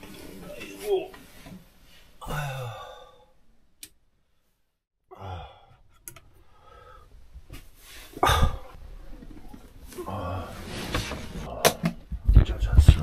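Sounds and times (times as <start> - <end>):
man sighing: 2.2 - 3.3, 5.1 - 5.8, 8.2 - 8.8.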